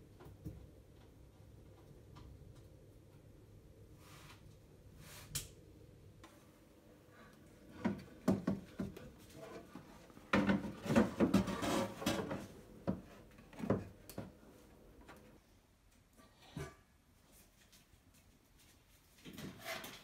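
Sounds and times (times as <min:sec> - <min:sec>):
fan unit knocking and scraping: 0:07.5 - 0:15.2.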